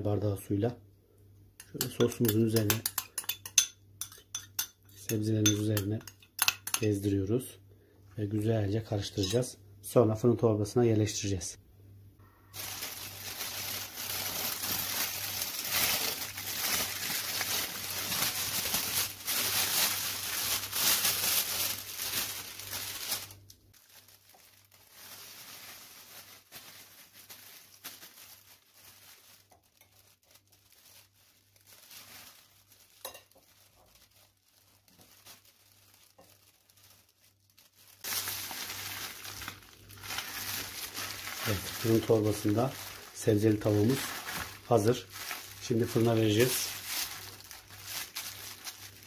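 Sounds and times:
plastic bag crinkling: 12.5 - 49.0.

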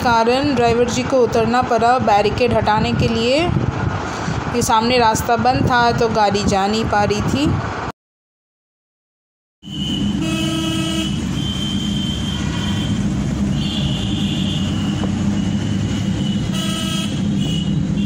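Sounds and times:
traffic engines and tyres rumbling: 0.0 - 7.9, 9.6 - 18.0
car horn blaring: 9.6 - 18.0.

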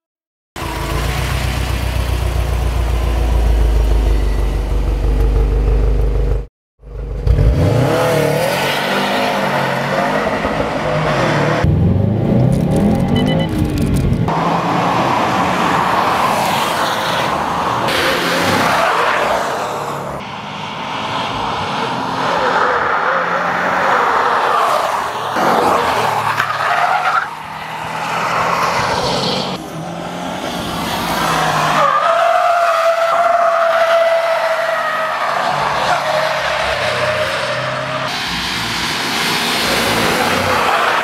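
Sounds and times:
car engine running hard: 0.6 - 8.6.

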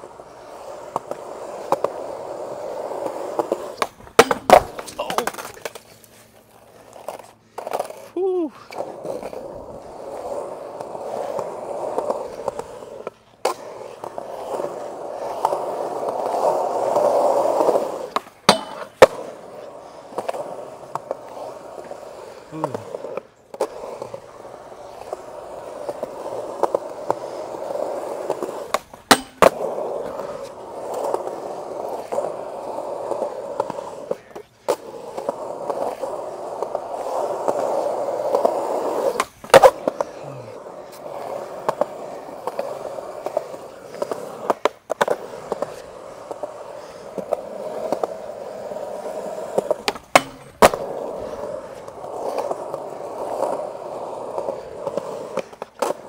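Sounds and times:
skateboard clacking on ground: 0.0 - 56.0
skateboard wheels rolling on concrete: 0.0 - 56.0.

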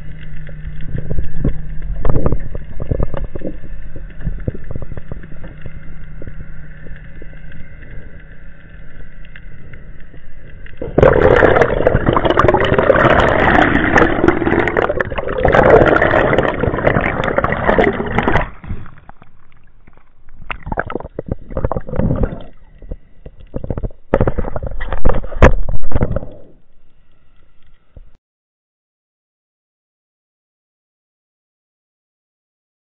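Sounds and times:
water gurgling underwater: 0.0 - 6.5, 10.6 - 26.6
water sloshes and splashes: 0.0 - 27.3.

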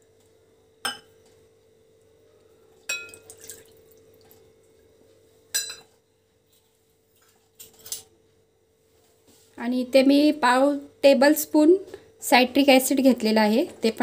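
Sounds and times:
clinks against glass: 0.8 - 1.1, 2.9 - 3.3, 5.5 - 5.9
water pouring into bowl: 2.9 - 4.4.

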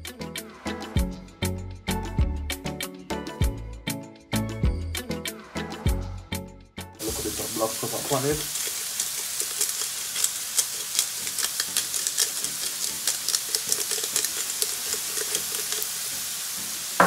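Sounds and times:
vegetables sizzling in frying pan: 7.0 - 17.0.

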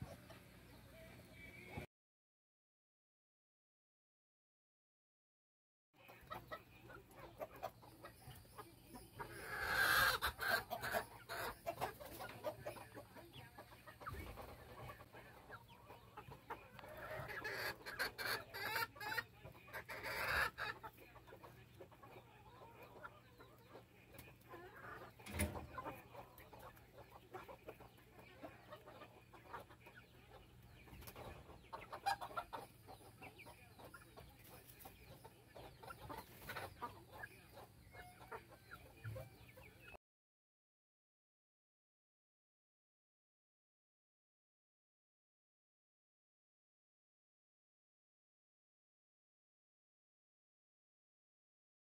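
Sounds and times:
chickens clucking: 0.0 - 1.9, 6.0 - 40.0.

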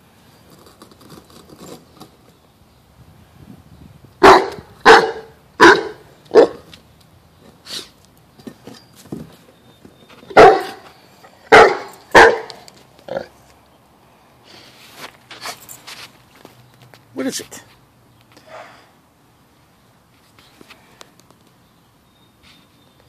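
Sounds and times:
large dog barking: 4.2 - 6.7, 10.3 - 10.8, 11.4 - 12.6.

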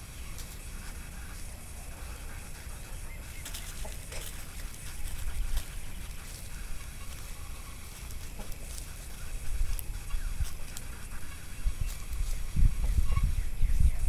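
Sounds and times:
dry leaves crackling under paws: 0.0 - 14.0
wind rumble on microphone: 9.1 - 14.0.

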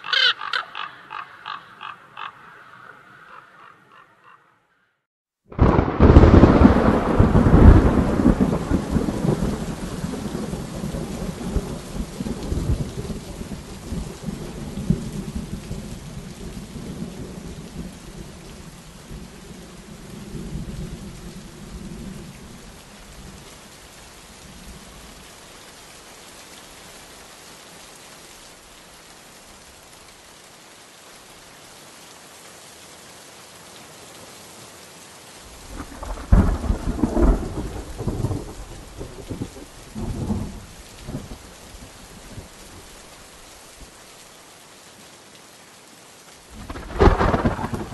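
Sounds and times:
thunder rolling: 5.5 - 10.6, 35.6 - 41.3, 46.6 - 47.9
rain hissing: 5.5 - 47.9.

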